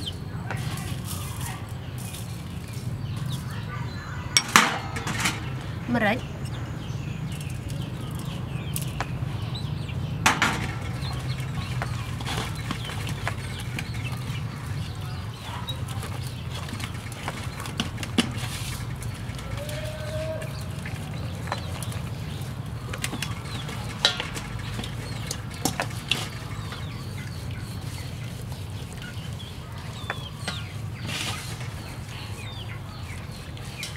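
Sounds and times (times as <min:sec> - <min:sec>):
hands rubbing raw chicken: 0:10.9 - 0:33.9.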